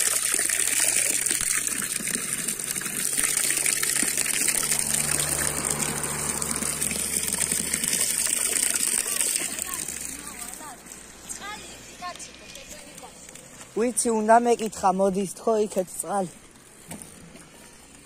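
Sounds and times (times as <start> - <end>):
water gushing from a spout: 0.0 - 11.2.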